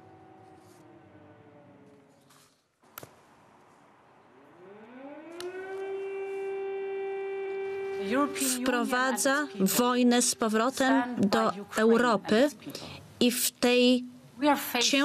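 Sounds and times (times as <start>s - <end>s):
air-raid siren winding up: 0.0s - 2.5s, 4.4s - 10.0s.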